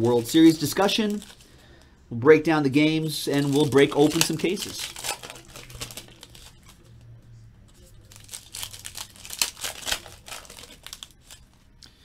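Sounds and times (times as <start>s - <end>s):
foil wrappers crinkling and tearing: 0.0s - 1.9s, 3.3s - 7.0s, 7.7s - 11.6s.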